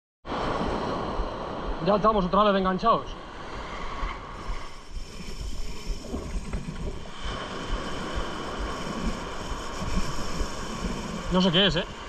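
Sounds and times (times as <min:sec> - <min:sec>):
surf washing up beach: 0:00.3 - 0:12.0
wind buffeting microphone: 0:03.3 - 0:12.0.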